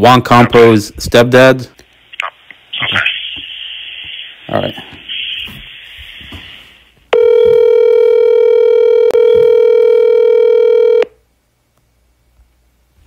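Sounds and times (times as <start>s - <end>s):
phone line click: 7.1s - 11.1s
telephone dial tone: 7.1s - 11.2s.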